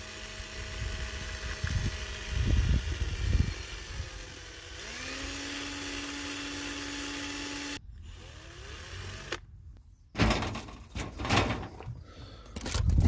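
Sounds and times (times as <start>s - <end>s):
small electric motor humming: 0.0s - 9.5s
loud clatter: 10.2s - 11.8s.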